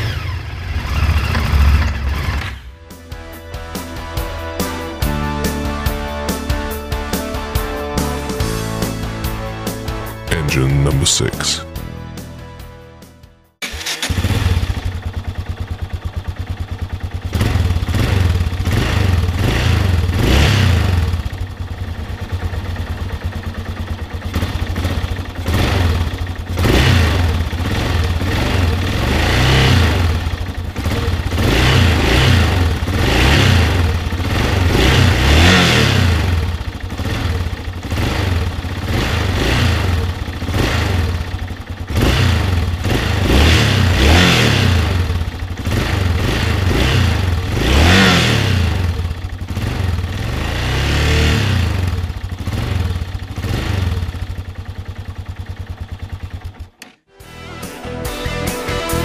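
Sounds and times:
motorcycle engine revving: 0.0s - 3.0s, 13.6s - 57.1s.

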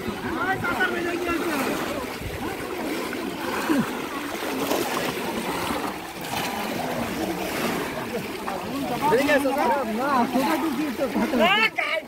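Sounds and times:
muddy water splashing: 0.0s - 12.0s
voices chattering: 0.0s - 12.0s.

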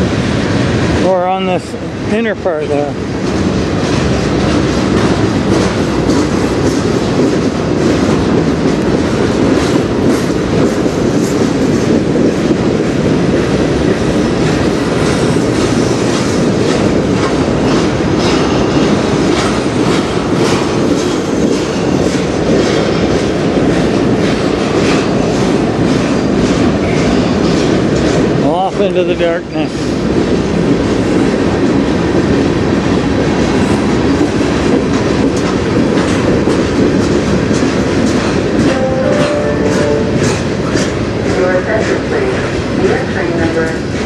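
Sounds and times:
train wheels rumbling on rail: 0.0s - 44.0s
clickety-clack wheel clicks: 3.2s - 12.7s, 13.3s - 29.2s, 33.2s - 38.8s.

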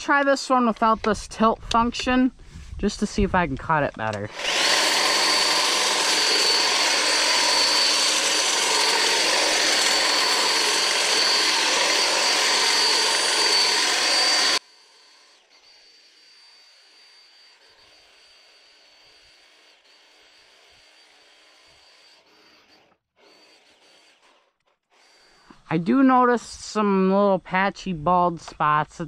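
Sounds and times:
hedge trimmer buzzing: 3.9s - 26.2s.

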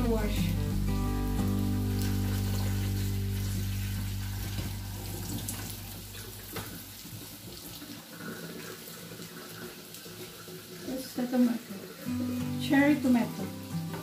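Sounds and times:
low steady hum: 0.0s - 7.1s
tap running into sink: 1.5s - 10.3s, 13.4s - 14.0s.

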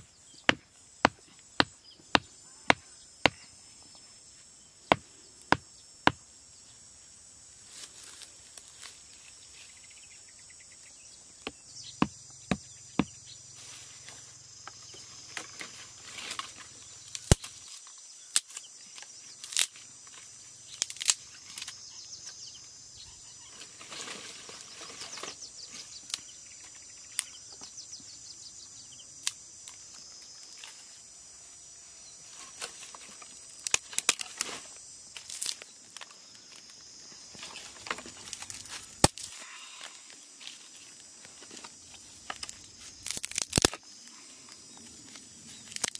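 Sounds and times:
insects droning: 0.0s - 45.9s
dry sticks snapping: 16.3s - 17.7s, 18.3s - 19.8s, 20.7s - 21.8s, 29.2s - 30.8s, 33.6s - 34.6s, 35.2s - 36.7s, 37.8s - 39.4s, 42.2s - 43.9s, 45.1s - 45.9s.

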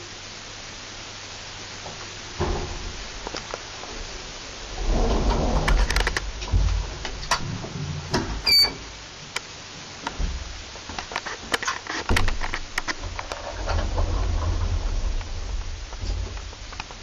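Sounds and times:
low rumble: 1.4s - 8.5s, 12.6s - 17.0s
elevator clicks and rattles: 4.8s - 8.9s.

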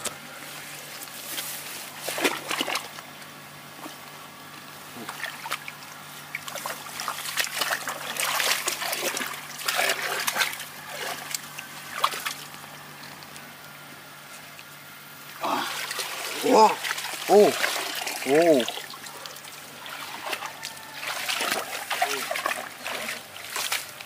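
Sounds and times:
splashing in muddy water: 1.9s - 3.0s, 5.0s - 13.5s, 15.4s - 24.0s.

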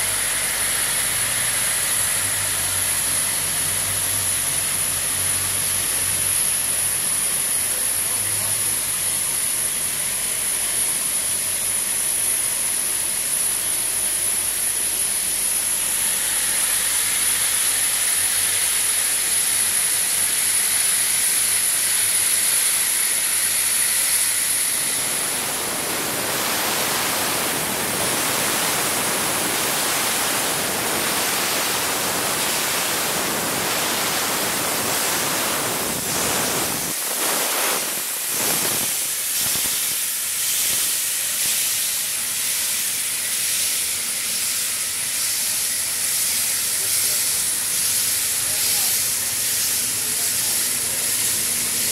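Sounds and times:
steam locomotive hissing: 0.0s - 51.9s
steam puffs: 0.0s - 51.9s
thin high-pitched hiss: 23.8s - 51.8s.

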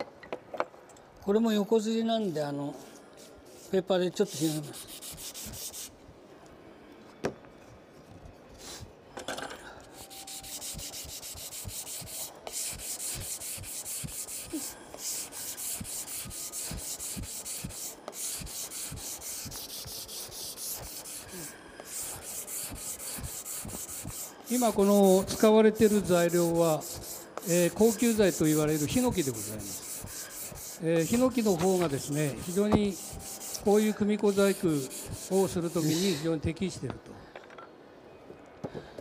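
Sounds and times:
sandpaper rubbing on wood: 3.2s - 6.0s, 10.0s - 36.2s.

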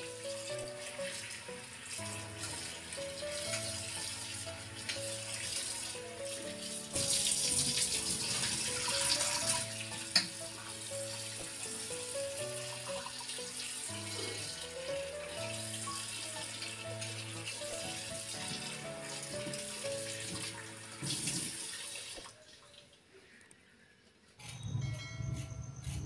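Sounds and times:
background music: 0.0s - 22.0s, 24.4s - 26.0s
water splashing and sloshing: 0.4s - 12.0s.

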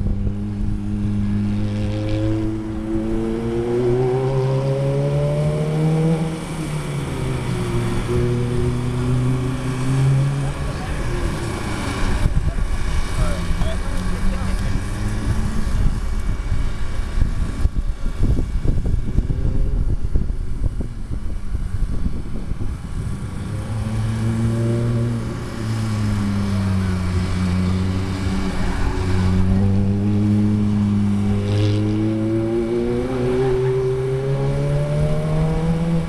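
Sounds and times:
gusty low rumble: 14.6s - 24.4s
sports car engine revving: 23.3s - 36.0s.

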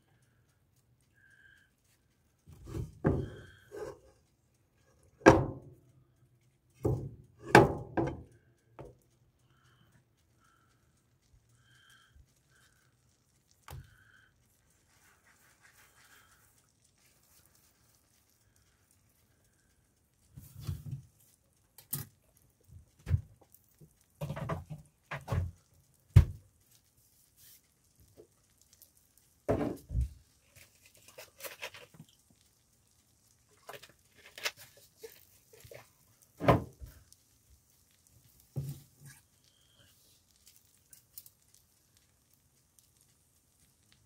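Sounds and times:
bread sizzling in a pan: 0.0s - 44.0s
knocks and thumps: 2.5s - 3.4s.

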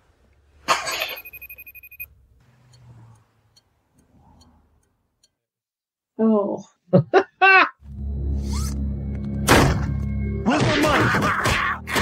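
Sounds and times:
cell phone ringing: 1.0s - 2.1s.

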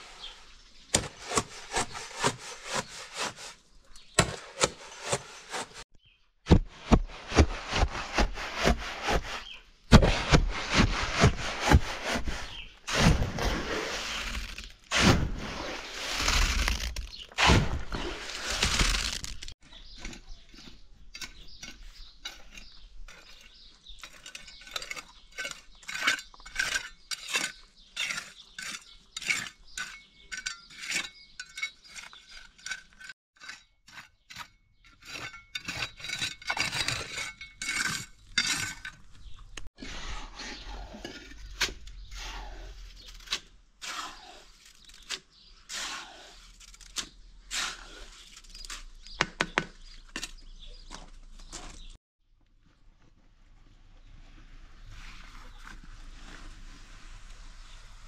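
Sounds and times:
hard objects scraping and knocking: 6.5s - 42.1s.

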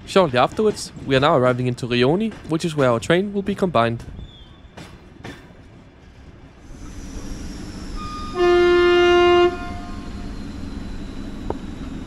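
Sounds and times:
train wheels on track: 0.0s - 12.0s
train horn blast: 8.0s - 10.2s.

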